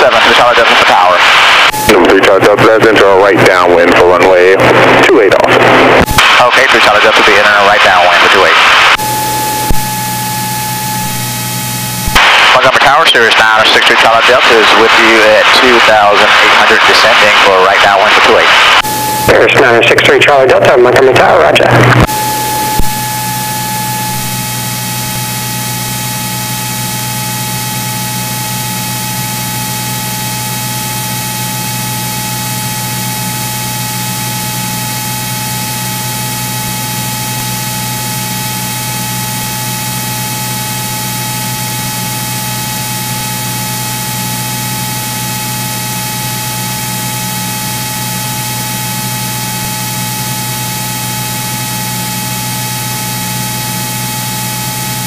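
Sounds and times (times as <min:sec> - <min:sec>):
cockpit audio hiss and hum: 0:00.0 - 0:25.9
aircraft engine drone: 0:00.0 - 0:55.0.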